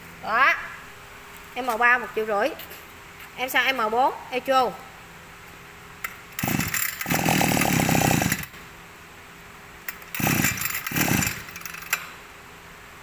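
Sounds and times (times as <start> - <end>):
recoil starter cord pulls: 6.4 - 8.5, 9.9 - 12.1
small two-stroke engine firing: 6.4 - 8.5, 9.9 - 12.1.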